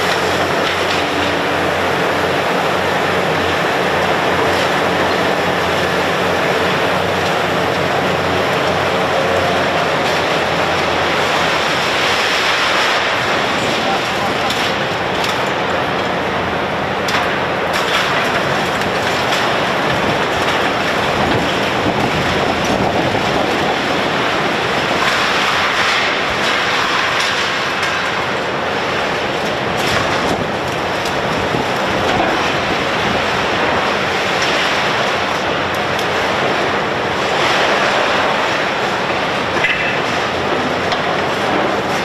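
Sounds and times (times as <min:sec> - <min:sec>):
excavator engine running: 0:00.0 - 0:42.0
concrete grinding and clattering debris: 0:17.0 - 0:42.0.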